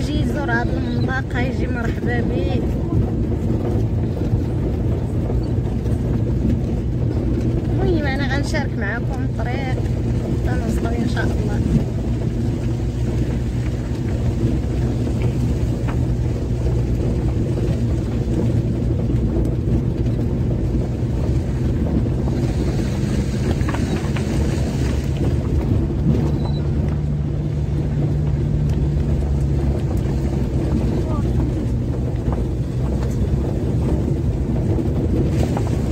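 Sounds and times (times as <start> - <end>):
car engine running: 0.0 - 35.9
rumbling road noise: 0.0 - 35.9.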